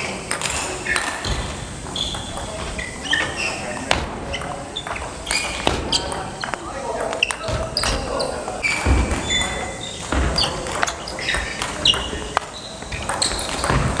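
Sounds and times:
shoes squeaking on floor: 0.0s - 14.0s
table tennis ball hitting bats: 0.0s - 14.0s
ball bouncing on table: 3.9s - 8.0s, 8.8s - 14.0s.

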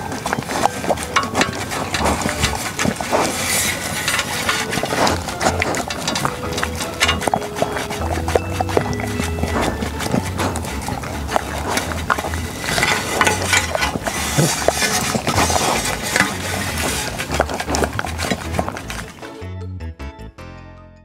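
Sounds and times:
dogs licking and lapping: 0.0s - 19.4s
clinks against metal trays: 1.0s - 10.4s, 11.4s - 17.2s.

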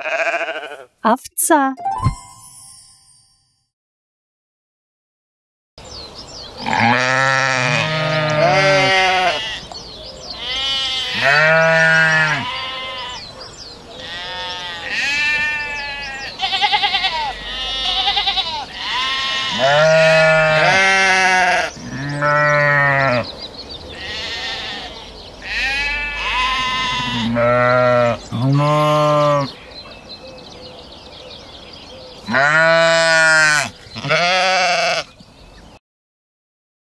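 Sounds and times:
sheep bleating: 0.0s - 1.0s, 6.6s - 9.7s, 10.4s - 13.3s, 14.0s - 23.3s, 23.9s - 29.6s, 32.3s - 35.2s.

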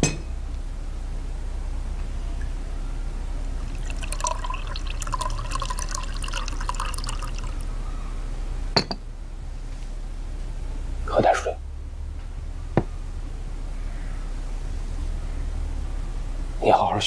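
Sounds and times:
water pouring into a cup: 3.5s - 7.7s
porcelain clink: 8.8s - 9.0s.

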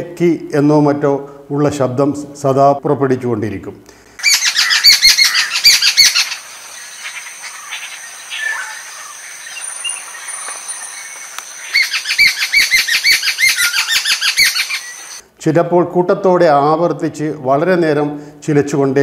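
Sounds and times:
birds chattering: 4.2s - 15.2s.

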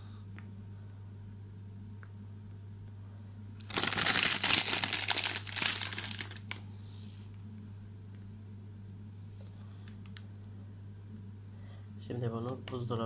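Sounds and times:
packet crinkling: 3.6s - 6.6s.

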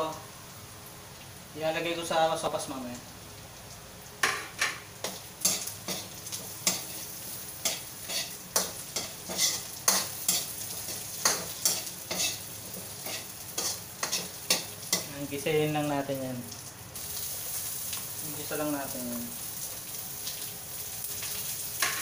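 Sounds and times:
meat sizzling: 0.0s - 22.0s
metal spatula scraping a wok: 7.6s - 12.4s.

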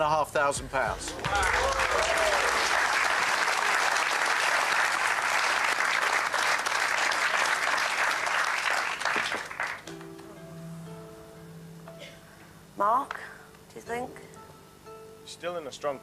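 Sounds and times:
audience applauding: 1.0s - 9.9s
soft sustained music: 9.8s - 16.0s.

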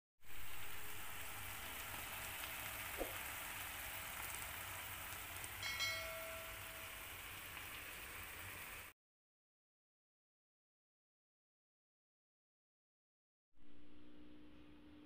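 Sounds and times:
food sizzling in a frying pan: 0.2s - 9.0s
bright ringing ding: 5.6s - 7.0s.

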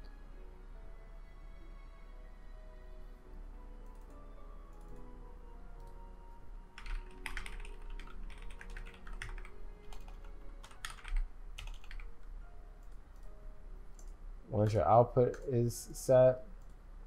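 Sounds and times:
faint background music: 0.0s - 17.0s
keyboard typing: 3.8s - 5.1s, 6.7s - 15.6s.

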